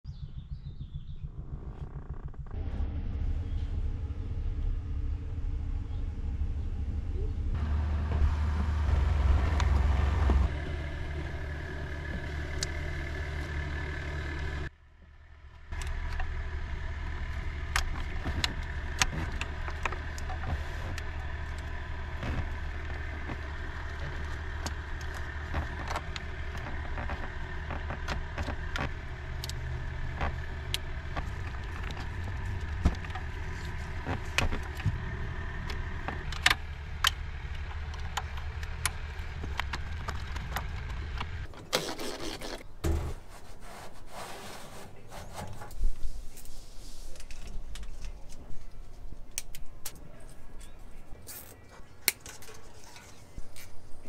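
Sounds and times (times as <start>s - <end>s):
steady low hum: 0.1s - 41.5s
plastic parts clicking and rattling: 49.3s - 53.9s.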